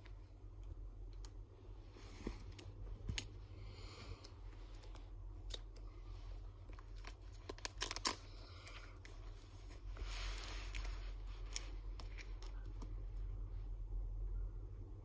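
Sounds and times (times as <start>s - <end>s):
plastic sleeves rustling and clicking: 6.6s - 13.2s.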